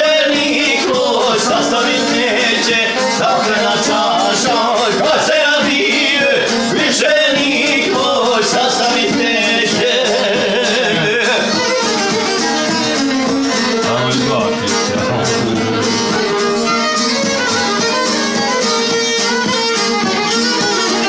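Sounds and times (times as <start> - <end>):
man singing: 0.0 - 17.2
plucked string instrument strumming: 0.0 - 21.0
violin bowing: 11.3 - 21.0.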